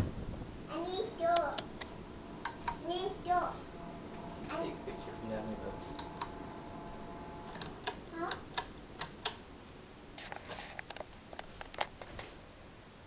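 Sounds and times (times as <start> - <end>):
ceiling fan running: 0.0 - 13.0
light irregular clicks: 1.4 - 2.8, 7.5 - 9.4.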